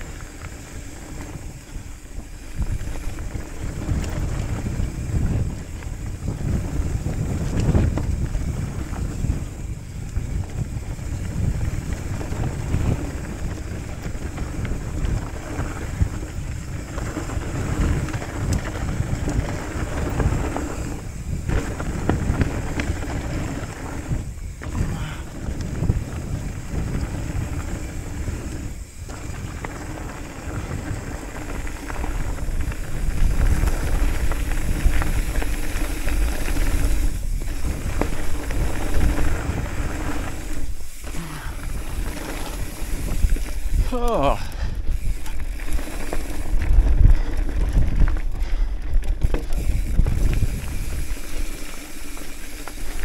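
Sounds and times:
bike tyres rumbling on dirt: 0.0 - 53.0
wind rushing over microphone: 0.0 - 53.0.

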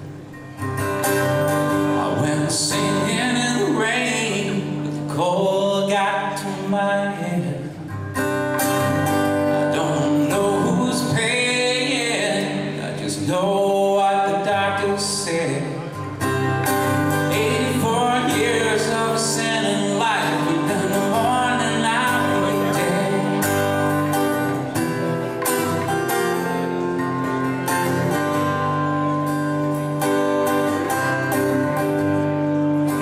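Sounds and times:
acoustic guitar: 0.0 - 33.0
man singing: 1.8 - 8.0, 9.4 - 16.1, 16.9 - 24.6.

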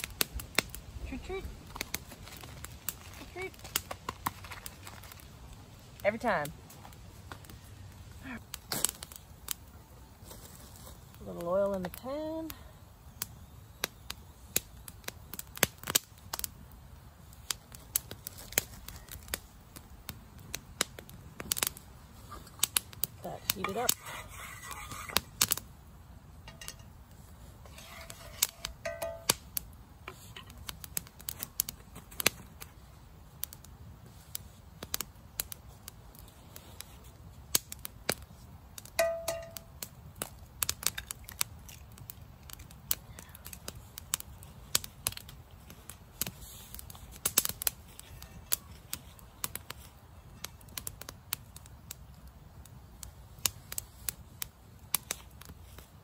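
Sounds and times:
wood fire crackling: 0.0 - 56.0
frying pan clanking on grill: 26.4 - 26.9, 27.8 - 29.4, 39.0 - 39.7.

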